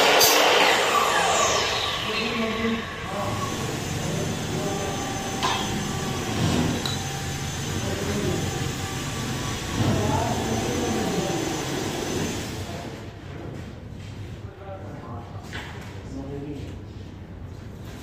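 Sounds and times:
indistinct voices: 0.0s - 8.9s
work site hum: 0.0s - 14.5s.

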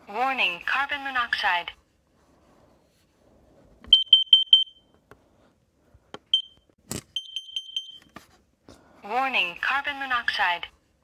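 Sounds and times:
carbon monoxide alarm beeping: 3.9s - 4.9s, 6.3s - 8.1s.

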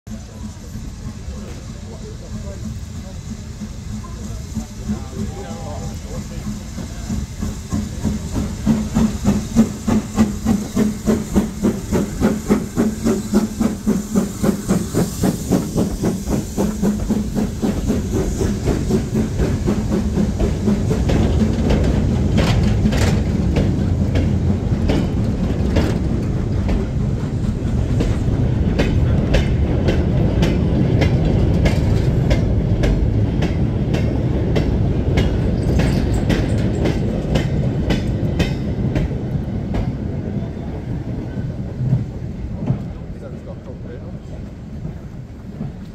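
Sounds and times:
steam locomotive exhaust beating: 0.1s - 45.9s.

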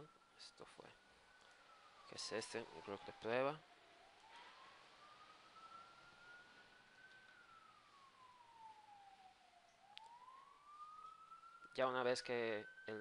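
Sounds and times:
faint wailing siren: 0.0s - 13.0s.

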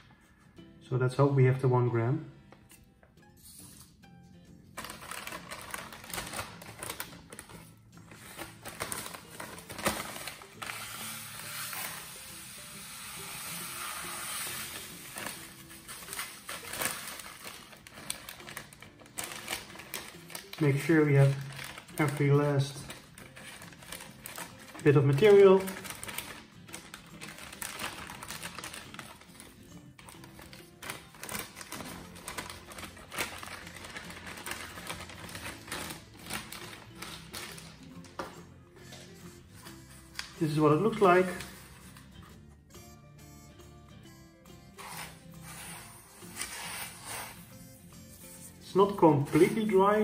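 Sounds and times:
plastic bag crinkling: 4.8s - 11.0s, 14.8s - 38.2s.

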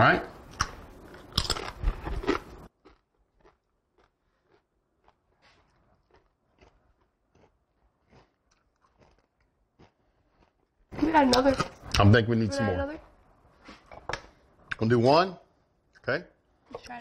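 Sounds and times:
crunching tortilla chip: 1.1s - 10.7s.

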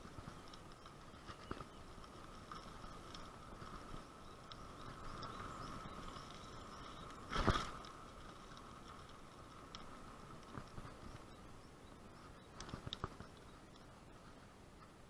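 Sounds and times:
bicycle clicks and rattles: 0.0s - 14.0s
bicycle tyre noise: 0.0s - 15.0s.

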